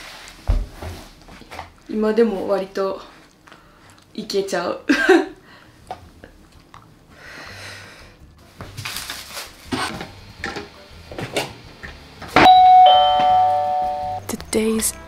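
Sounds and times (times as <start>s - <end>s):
two-note doorbell chime: 12.4s - 14.3s.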